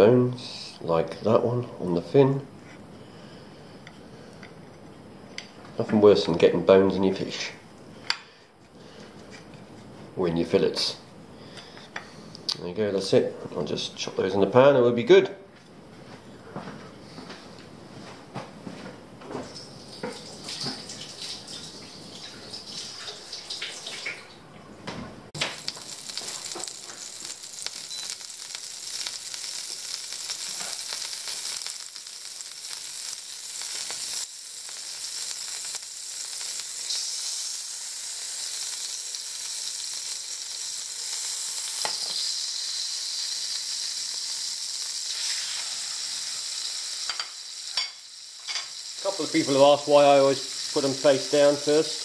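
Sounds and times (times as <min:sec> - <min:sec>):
butter sizzling in frying pan: 0:25.4 - 0:52.0.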